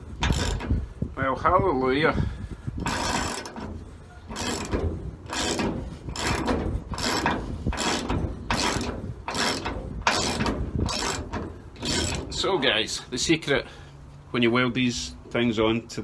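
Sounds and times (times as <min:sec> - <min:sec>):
ratchet wrench clicking: 0:06.2 - 0:07.2.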